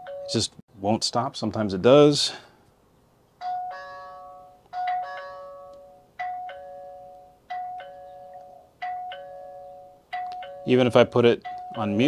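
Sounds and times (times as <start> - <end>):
two-note doorbell chime: 3.4 - 12.0.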